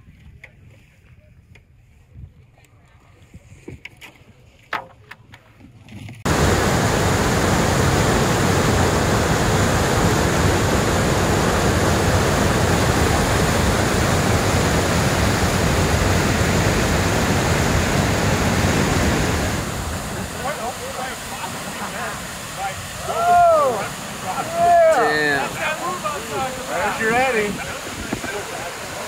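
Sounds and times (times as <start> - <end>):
roar of whitewater rapid: 6.3 - 29.0.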